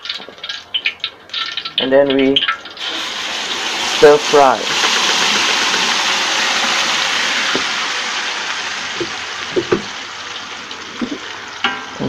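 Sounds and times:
paste sizzling in hot oil: 0:02.8 - 0:12.0.

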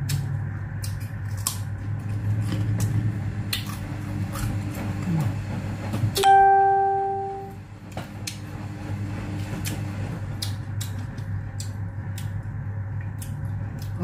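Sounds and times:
steady low hum: 0:00.0 - 0:14.0
wet chewing clicks: 0:10.4 - 0:12.4.

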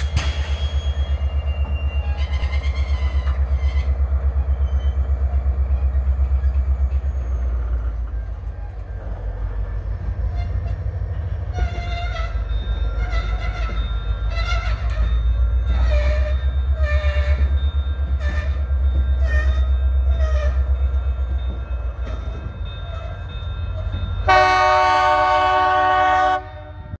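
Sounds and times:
train wheels clattering: 0:00.0 - 0:25.5
freight train rumbling: 0:00.0 - 0:27.0
train horn: 0:24.2 - 0:27.0.

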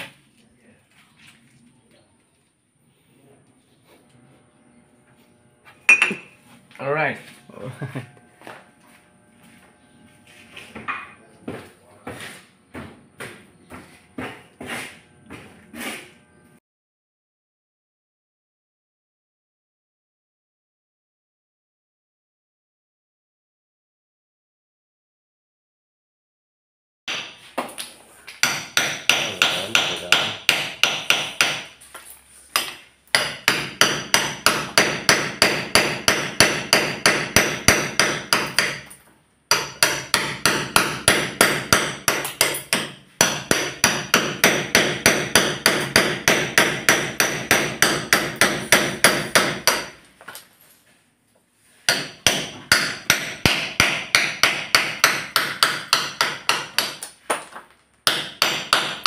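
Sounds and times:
hammer striking chisel on wood: 0:10.8 - 0:16.1, 0:27.1 - 0:31.8, 0:32.5 - 0:50.0, 0:51.9 - 0:59.0.

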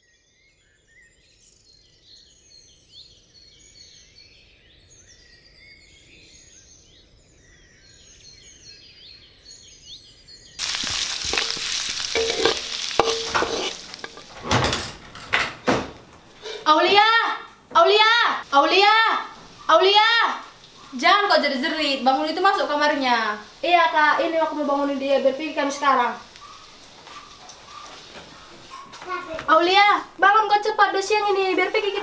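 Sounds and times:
garlic sizzling in hot oil: 0:10.6 - 0:15.3, 0:18.4 - 0:32.0
metal spatula scraping wok: 0:10.6 - 0:15.3
faint birds chirping: 0:16.2 - 0:32.0.

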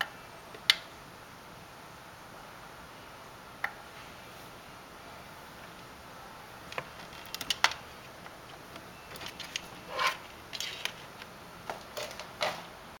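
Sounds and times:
cable and plastic parts clicking: 0:06.7 - 0:12.6.

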